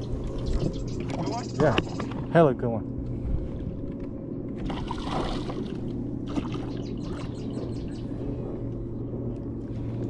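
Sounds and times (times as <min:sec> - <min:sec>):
water trickling and lapping: 0:00.0 - 0:02.4, 0:04.5 - 0:08.9
steady low hum: 0:00.0 - 0:10.0.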